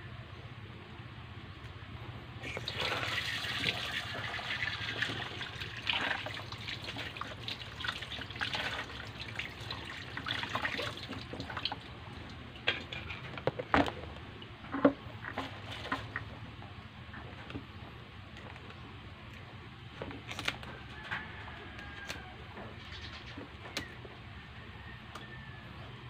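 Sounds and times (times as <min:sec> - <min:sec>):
tap water splashing in a sink: 0:02.5 - 0:13.0.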